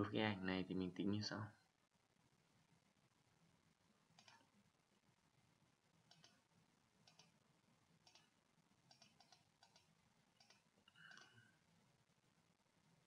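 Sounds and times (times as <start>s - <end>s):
faint computer mouse clicks: 4.2s - 4.5s, 6.1s - 6.4s, 7.0s - 7.4s, 8.0s - 8.3s, 8.9s - 11.4s.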